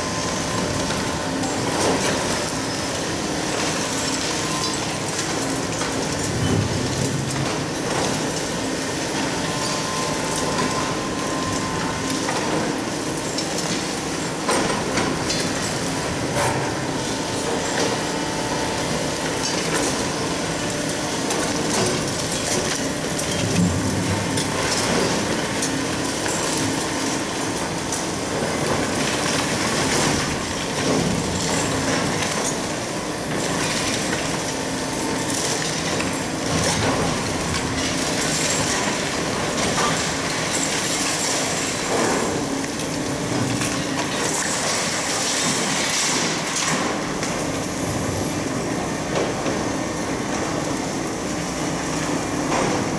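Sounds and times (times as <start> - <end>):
excavator engines droning: 0.0 - 6.4.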